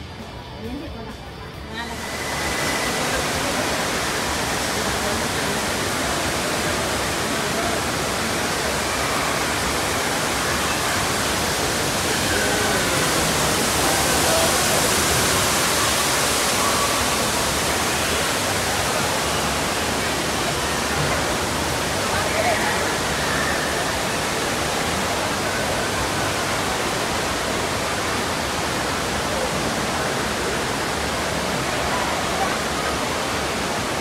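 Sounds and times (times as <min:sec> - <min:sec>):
faint distant voices: 0:00.0 - 0:34.0
rushing water: 0:01.7 - 0:34.0.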